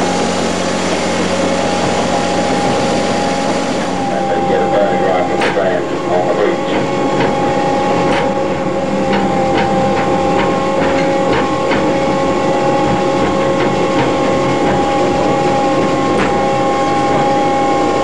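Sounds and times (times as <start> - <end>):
tram motor whine: 0.0 - 18.0
wheels clicking over rail joints: 6.7 - 17.4.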